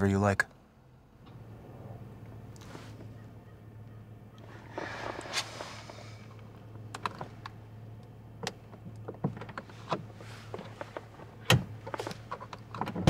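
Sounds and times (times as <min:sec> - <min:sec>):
car cabin hum: 0:00.0 - 0:13.0
small clicks and rustles: 0:04.4 - 0:13.0.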